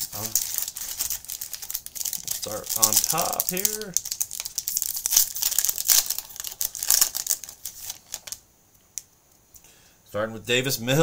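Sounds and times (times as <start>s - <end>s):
wrapper crinkling and tearing: 0.0s - 8.4s.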